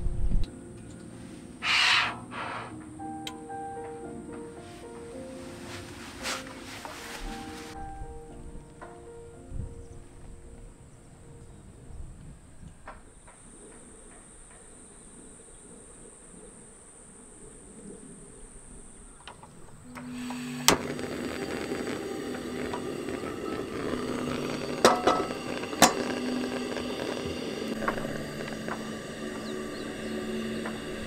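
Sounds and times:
crickets trilling: 13.1s - 31.0s
gas stove hissing: 19.9s - 31.0s.

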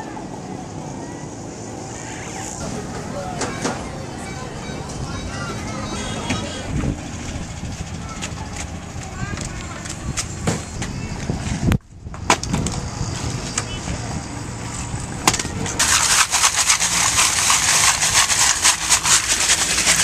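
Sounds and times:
charcoal rattling in metal sieve: 15.8s - 20.0s.

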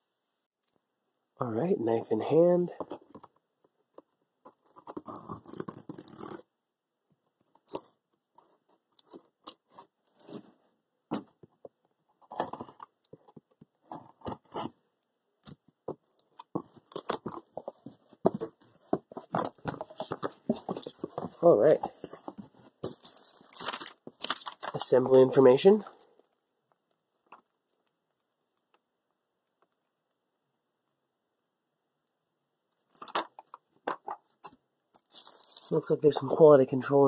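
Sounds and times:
scrapes and crinkles: 7.4s - 14.8s, 15.4s - 28.4s.

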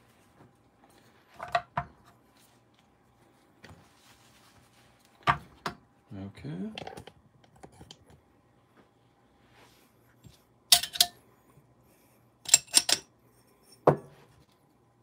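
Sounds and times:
metal portafilter clinks: 10.7s - 11.2s, 12.5s - 13.1s.

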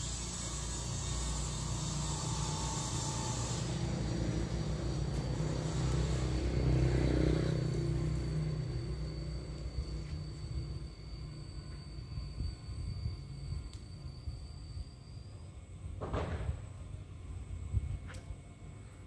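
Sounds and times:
passing vehicle engine rumble: 3.1s - 11.6s.

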